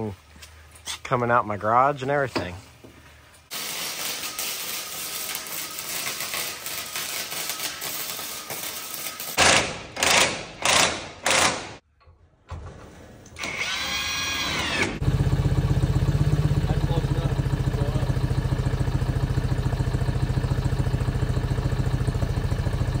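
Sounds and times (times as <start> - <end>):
power drill driving screws: 7.6 - 11.8, 13.4 - 15.0
forklift engine throbbing: 13.5 - 23.0.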